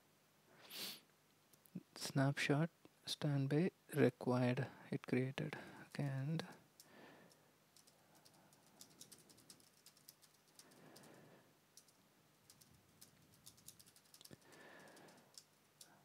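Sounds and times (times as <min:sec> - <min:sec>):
faint keyboard typing: 0:06.0 - 0:16.0.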